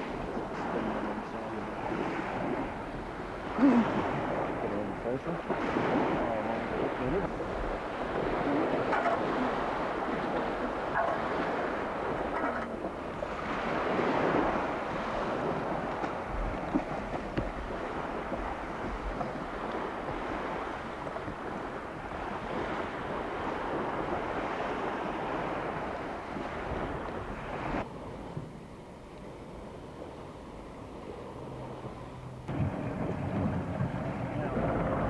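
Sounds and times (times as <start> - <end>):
small waves washing: 0.0 - 35.0
wind buffeting microphone: 0.0 - 35.0.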